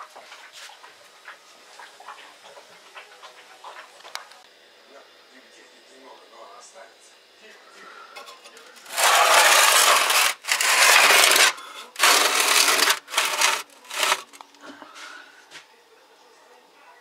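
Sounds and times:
metal tray scraping on brick: 0:08.2 - 0:14.4.

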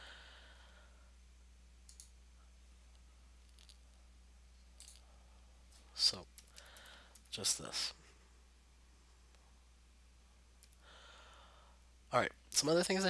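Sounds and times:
low steady hum: 0:00.0 - 0:13.0
faint computer mouse clicks: 0:01.9 - 0:02.2.

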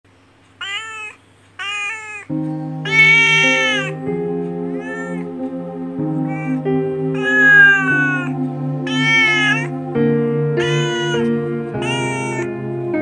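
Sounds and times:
kitten meowing: 0:00.6 - 0:04.0, 0:04.8 - 0:05.3, 0:07.2 - 0:09.8, 0:10.6 - 0:12.6
soft background music: 0:02.3 - 0:13.0.

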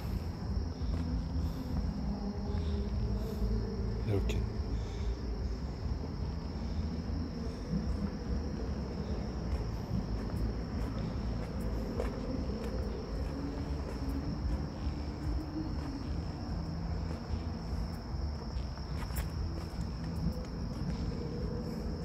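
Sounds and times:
crickets trilling: 0:00.0 - 0:22.0
low steady rumble: 0:00.0 - 0:22.0.

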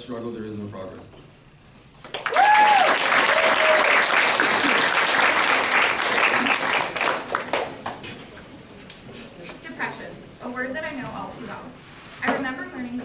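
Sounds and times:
audience applauding: 0:02.0 - 0:08.0
whooping cheers: 0:02.2 - 0:04.8.

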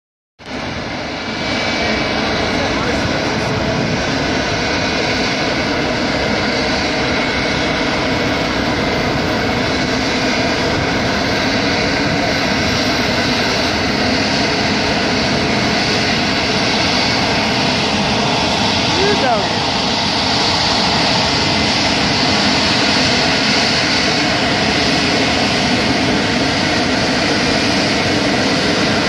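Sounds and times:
jet engine whine: 0:00.4 - 0:29.0.

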